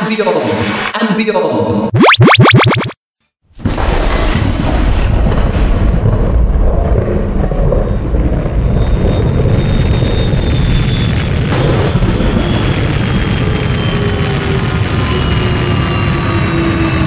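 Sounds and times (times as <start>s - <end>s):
jet thruster roar: 3.8s - 17.0s.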